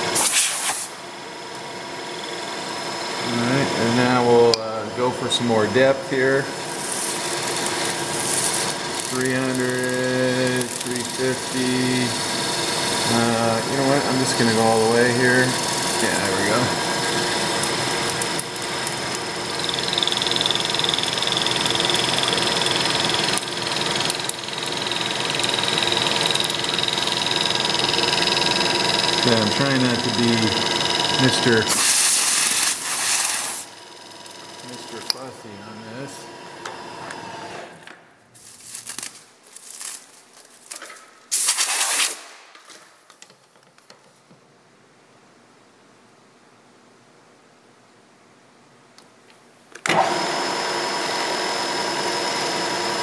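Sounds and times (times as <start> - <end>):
air blowing hisses: 0.0 - 1.0, 6.4 - 16.8, 31.3 - 33.7
high cutting whine: 0.0 - 37.8
milling machine hum: 0.8 - 37.8, 49.9 - 53.0.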